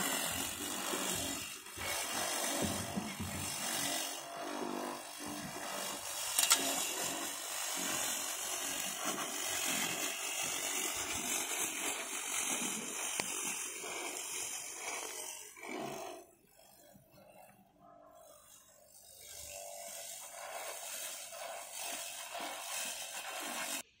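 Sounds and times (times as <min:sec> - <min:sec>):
electric lawn mower running: 0:00.0 - 0:24.0.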